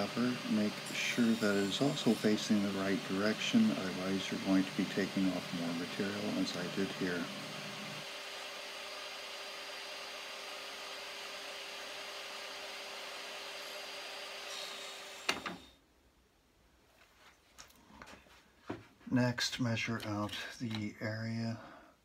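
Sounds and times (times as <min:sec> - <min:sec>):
table saw motor whining: 0:00.0 - 0:15.8.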